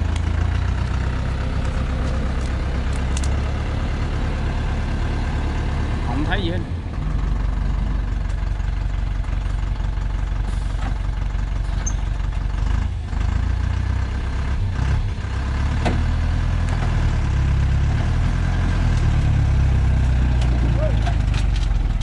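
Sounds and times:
diesel truck engine rumbling: 0.0 - 22.0.

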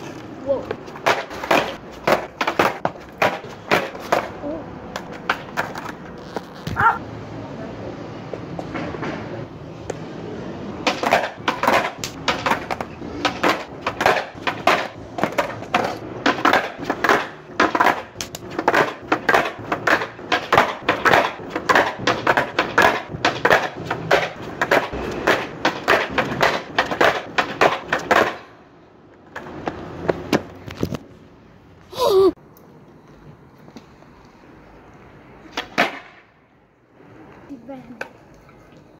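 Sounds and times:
skateboard clattering on stone: 0.0 - 7.0, 10.8 - 31.1, 35.5 - 36.3.

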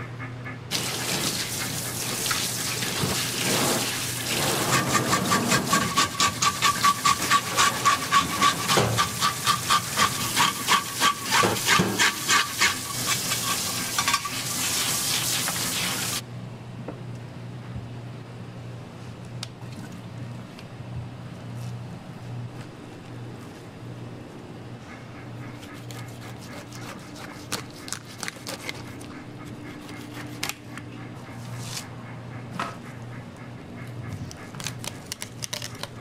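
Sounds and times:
tap water running into sink: 0.7 - 4.9
hand scrubbing fish: 0.7 - 16.2, 25.6 - 30.5.

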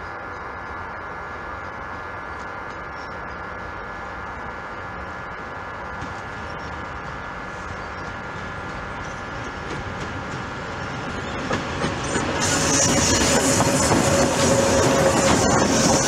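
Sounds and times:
diesel locomotive approaching: 0.1 - 16.0
wheels clicking over rail joints: 8.0 - 12.4.

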